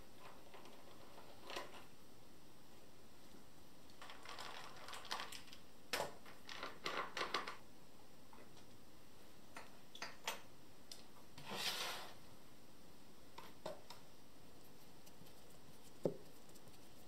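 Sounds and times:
short scrape: 11.4 - 12.2.

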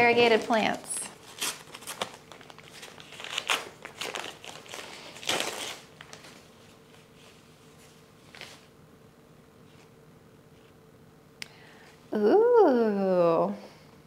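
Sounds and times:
paper wrapping crinkling: 0.1 - 8.7.

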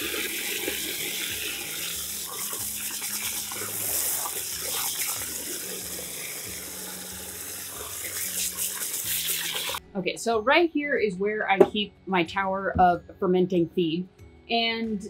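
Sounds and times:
water running from a hose into a bucket: 0.0 - 9.8.

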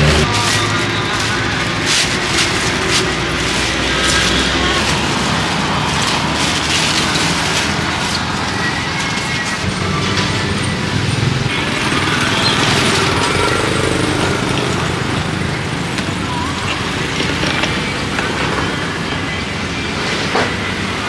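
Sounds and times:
plastic bag crinkling: 0.0 - 9.6
cars and motorbikes passing: 0.0 - 21.0.

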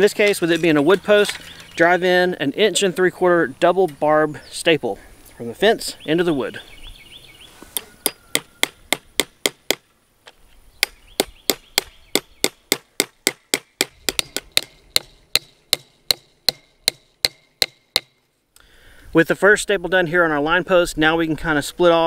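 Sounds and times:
hammer striking staples into wood: 10.8 - 18.2.

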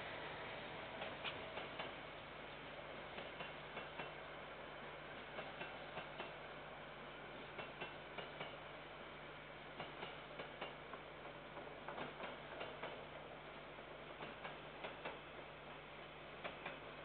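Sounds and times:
steady hiss and low hum: 0.0 - 17.0
train wheels clicking over rail joints: 1.0 - 2.1, 3.0 - 4.3, 5.1 - 6.5, 7.4 - 8.7, 9.7 - 17.0.

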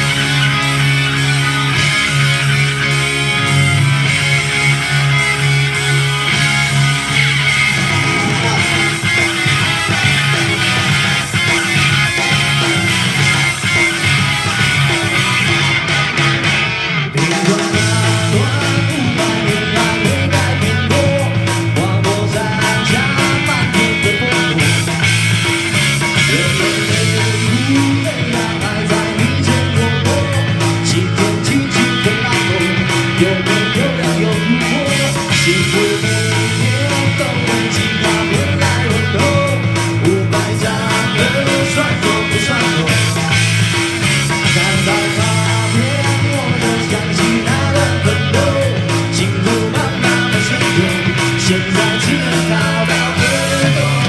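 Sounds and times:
backing track with steady beat: 0.0 - 54.0
man singing into a microphone: 8.0 - 9.1, 17.3 - 25.1, 26.0 - 43.6, 44.3 - 54.0.

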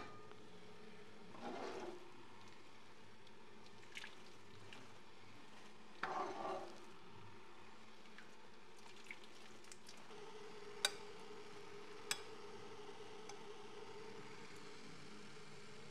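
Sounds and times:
faint steady hum: 0.0 - 15.9
soft spoon ticks: 10.8 - 11.1, 12.1 - 12.3, 13.2 - 13.4.

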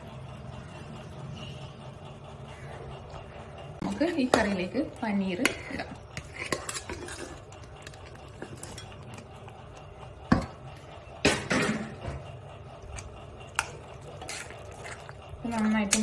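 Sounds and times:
steel bowl and spoon clinking: 3.8 - 9.6.

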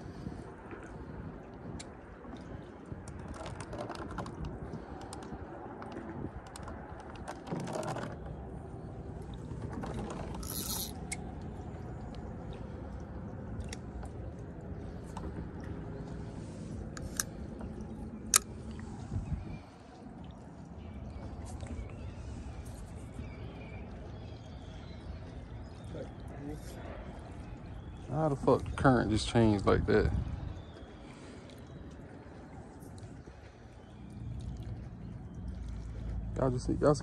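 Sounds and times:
fishing reel clicks and knocks: 10.1 - 11.2.

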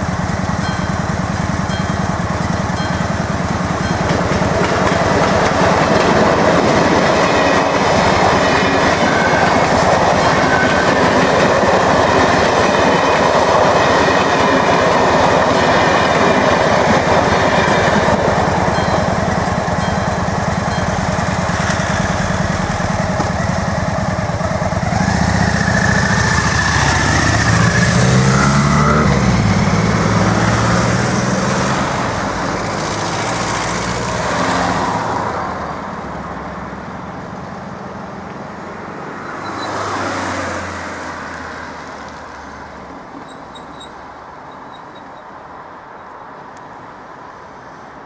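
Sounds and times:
engines revving: 20.4 - 35.2.

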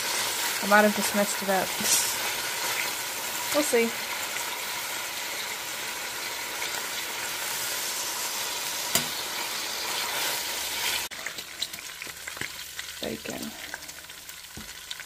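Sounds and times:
bacon sizzling in a pot: 0.0 - 15.0.

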